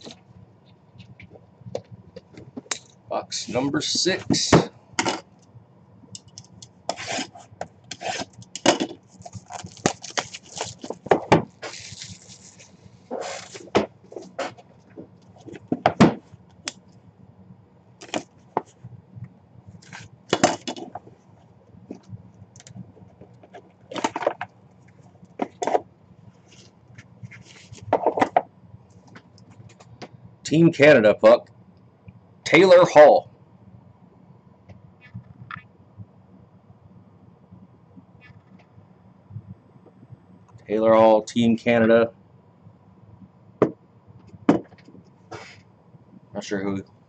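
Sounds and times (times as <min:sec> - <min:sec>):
cardboard rustling: 0:09.1 - 0:16.2.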